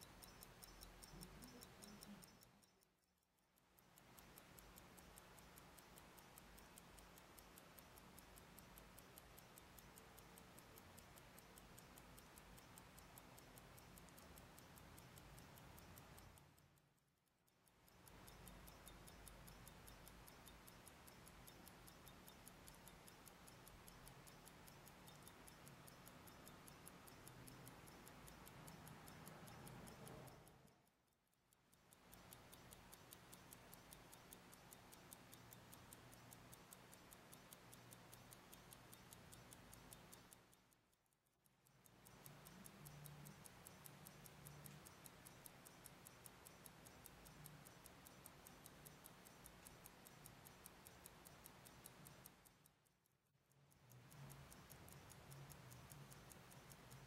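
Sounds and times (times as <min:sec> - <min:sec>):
faint low hum: 0:00.0 - 0:31.2
pocket watch ticking: 0:00.0 - 0:57.0.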